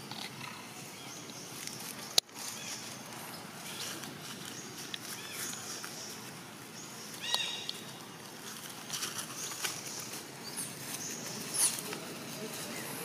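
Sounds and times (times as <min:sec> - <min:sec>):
rustling of dry leaves: 0:00.0 - 0:13.0.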